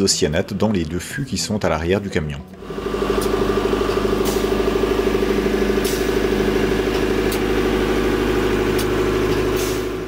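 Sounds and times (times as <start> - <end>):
air compressor engine running: 2.5 - 10.0.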